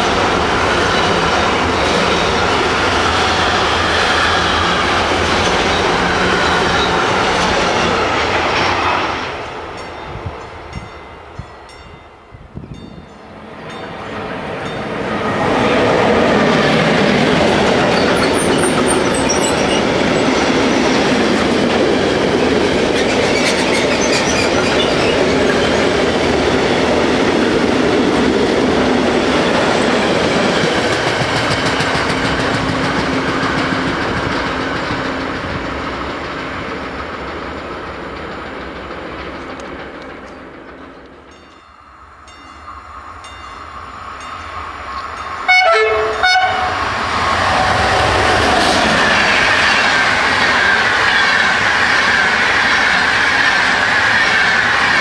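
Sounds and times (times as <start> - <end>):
freight train rumbling past: 0.0 - 55.0
high-pitched wheel squeals: 17.9 - 20.4.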